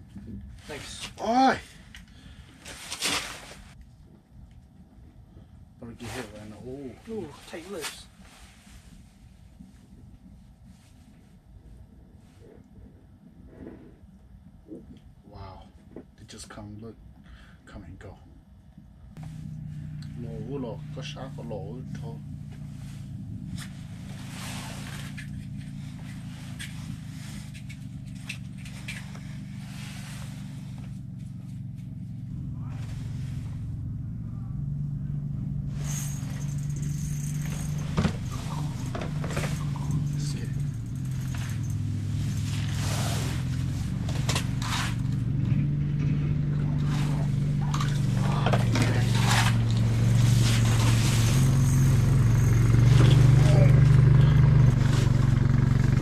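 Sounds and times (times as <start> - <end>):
low mechanical hum: 0.0 - 56.0
scrapes and clicks: 23.5 - 31.3.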